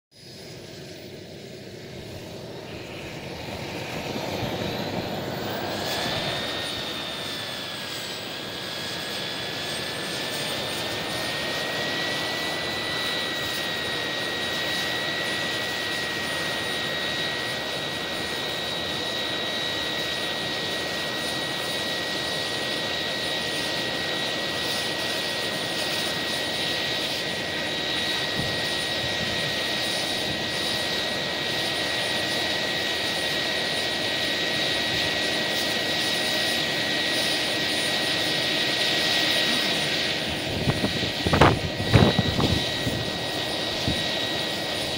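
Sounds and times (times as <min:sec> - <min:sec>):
model turbine whine: 0:00.1 - 0:44.9.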